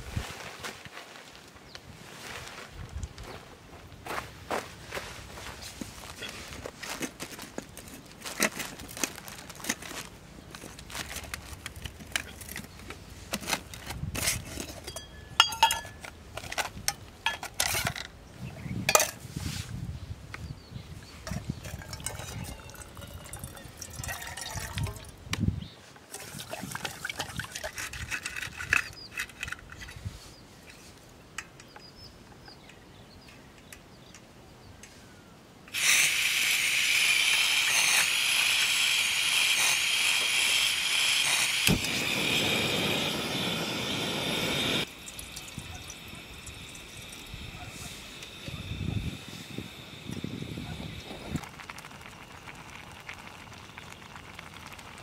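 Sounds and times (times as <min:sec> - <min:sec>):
handling clicks and rustles: 0:05.6 - 0:18.1
water pouring into pot: 0:21.6 - 0:25.2, 0:26.1 - 0:27.9, 0:41.3 - 0:47.5, 0:50.9 - 0:55.0.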